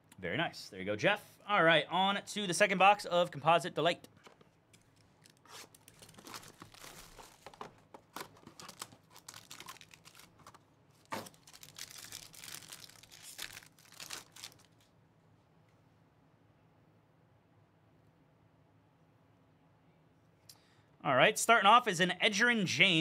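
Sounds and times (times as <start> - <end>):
wrapper crinkling and tearing: 5.0 - 14.9.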